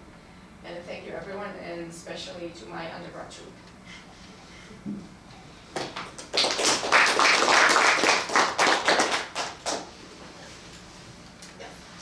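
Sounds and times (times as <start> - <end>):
people applauding: 5.8 - 9.9.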